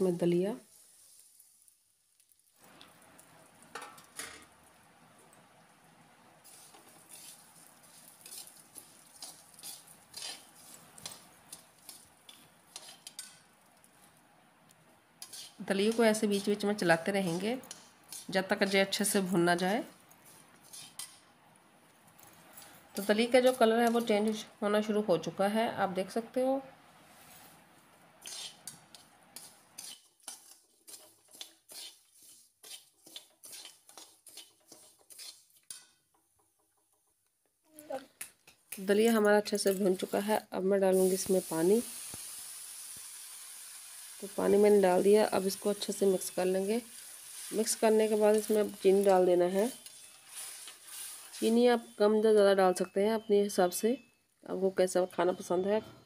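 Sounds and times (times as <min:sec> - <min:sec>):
metal spatula scraping a pan: 0:06.4 - 0:13.5, 0:15.2 - 0:18.8, 0:20.2 - 0:21.2, 0:22.5 - 0:24.4, 0:28.2 - 0:36.0, 0:44.9 - 0:52.0.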